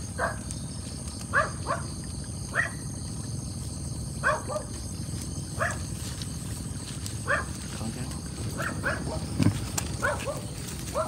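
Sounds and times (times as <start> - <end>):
dog barking: 0.2 - 0.4, 1.3 - 1.9, 2.5 - 2.8, 4.2 - 4.7, 5.6 - 5.8, 7.2 - 7.6, 8.5 - 9.3, 10.0 - 11.0.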